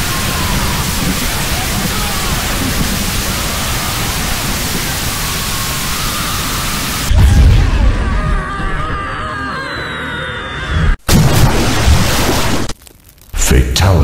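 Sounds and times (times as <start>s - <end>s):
rushing energy hiss: 0.0s - 7.1s
falling whistle: 0.0s - 11.0s.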